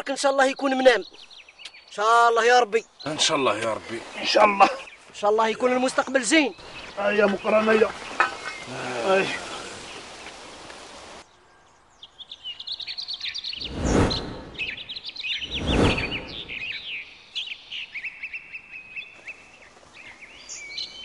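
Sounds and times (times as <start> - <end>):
songbirds chirping and trilling: 0.0 - 21.0
bursts of rushing noise: 13.6 - 14.8, 15.4 - 16.7.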